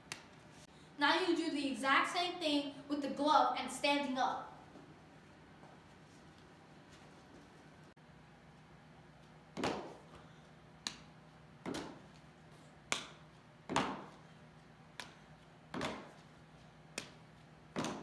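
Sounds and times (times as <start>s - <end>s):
baseball hitting leather glove: 9.5s - 10.2s, 10.8s - 12.2s, 12.9s - 14.3s, 15.0s - 16.3s, 16.9s - 18.0s.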